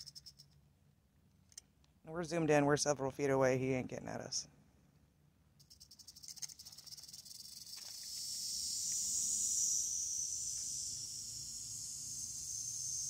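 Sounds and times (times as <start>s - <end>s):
rattlesnake rattling: 0.0s - 0.6s, 5.6s - 13.0s.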